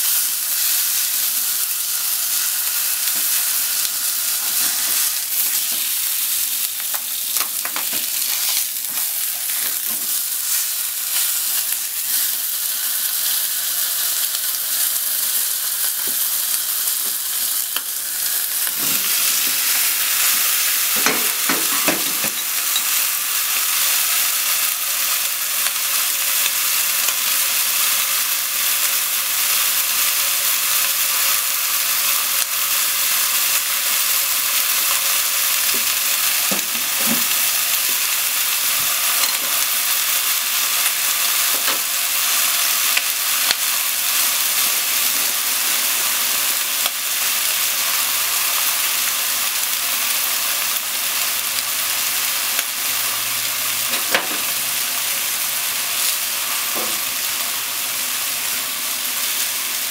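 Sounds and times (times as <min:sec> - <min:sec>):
chicken sizzling in oil: 0:00.0 - 0:59.9
chopsticks tapping meat and pan: 0:06.9 - 0:08.2, 0:20.9 - 0:23.1, 0:35.7 - 0:38.1, 0:41.5 - 0:41.9, 0:53.9 - 0:54.6
clattering knocks in pan: 0:21.0 - 0:22.9, 0:54.0 - 0:54.4.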